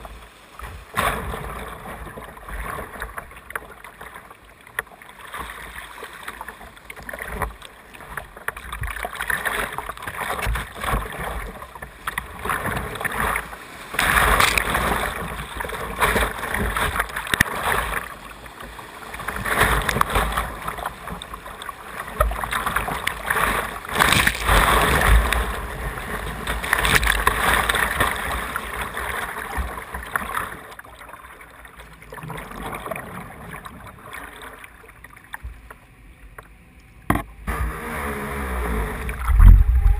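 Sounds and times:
whitewater rushing and splashing: 5.2 - 31.2.

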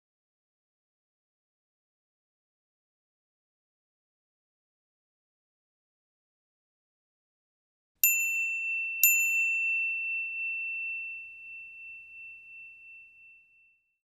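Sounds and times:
timer bell chime dinging: 8.0 - 13.6.

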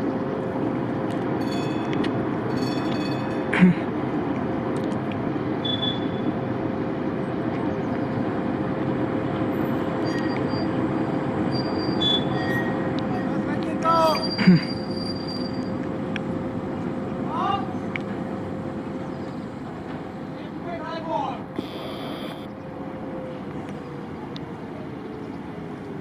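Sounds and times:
tram rumbling on track: 0.0 - 26.0
short squeaks and clicks: 5.6 - 6.3, 10.0 - 10.8, 11.4 - 13.4, 14.0 - 15.9, 21.6 - 22.5.

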